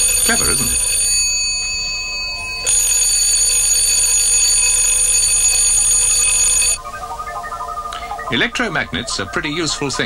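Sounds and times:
electric doorbell ringing: 0.0 - 6.8.

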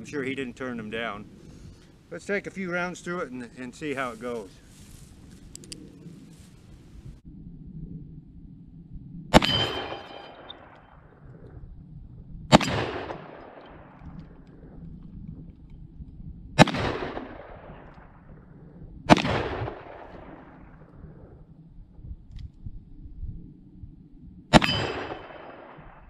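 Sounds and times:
revolver shots with echo: 9.3 - 10.7.

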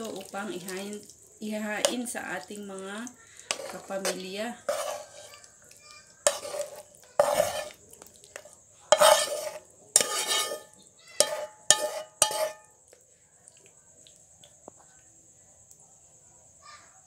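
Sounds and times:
spoon scraping a pan: 3.3 - 12.8.

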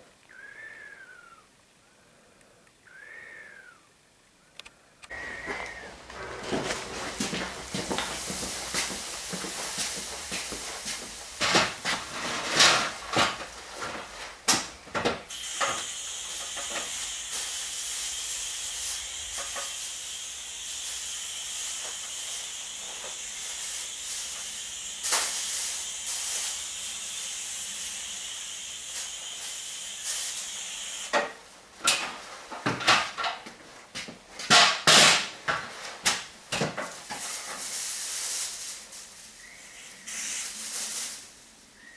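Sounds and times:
aerosol spray can hissing: 5.1 - 12.2, 15.3 - 31.2, 37.2 - 41.5
plastic sheeting crinkling: 5.2 - 14.9, 35.7 - 41.7.

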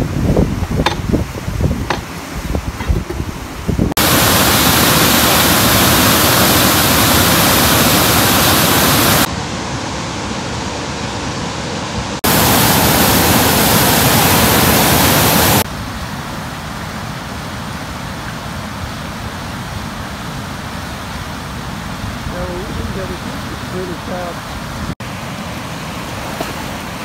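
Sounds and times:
water rushing over rocks: 3.7 - 9.3, 12.2 - 16.0.

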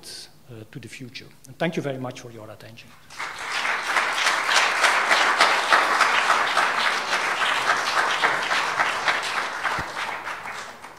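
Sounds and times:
audience applauding: 3.1 - 10.9.

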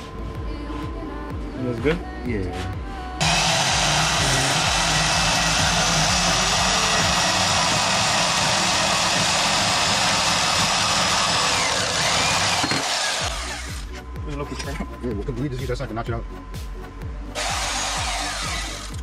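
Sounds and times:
band saw cutting metal: 3.2 - 13.9, 17.4 - 19.0.

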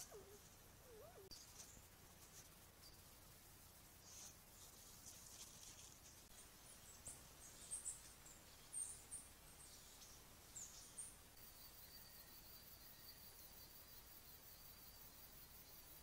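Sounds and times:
high insect trill: 0.0 - 16.0
small birds chirping: 0.0 - 16.0.

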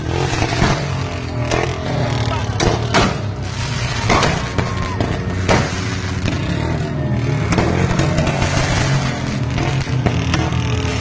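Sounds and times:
outdoor crowd din: 0.0 - 11.0
vehicle engine running: 0.0 - 11.0
sharp cracks: 0.2 - 6.8.

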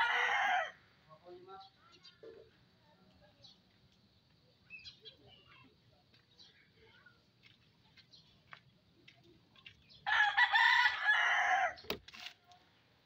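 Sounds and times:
rooster crowing: 0.0 - 0.8, 10.0 - 11.8.

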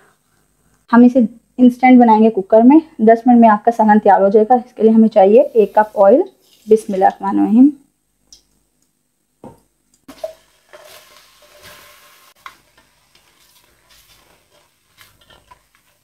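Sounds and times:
onions sizzling in oil: 4.8 - 7.7, 9.4 - 16.0
spatula scraping pot: 10.1 - 16.0.

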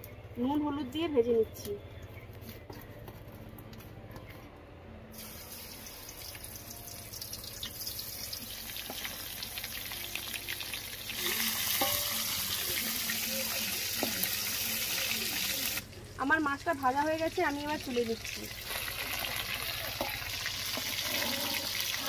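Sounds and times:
fish sizzling in hot oil: 5.2 - 22.0.

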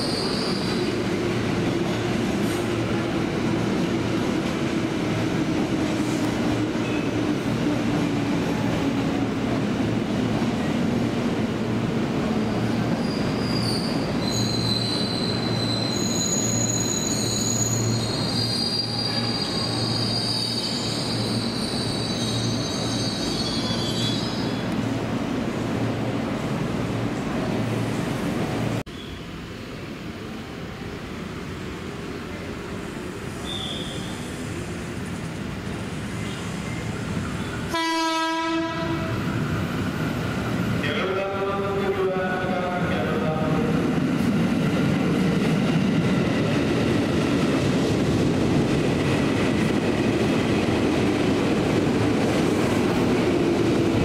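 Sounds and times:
brake and wheel squeals: 0.0 - 0.8, 13.0 - 24.8, 28.9 - 29.2, 33.4 - 34.4.

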